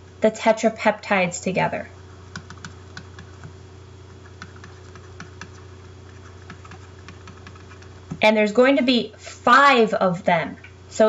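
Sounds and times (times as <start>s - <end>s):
steady low hum: 0.0s - 11.0s
stylus tapping on tablet screen: 6.4s - 7.9s.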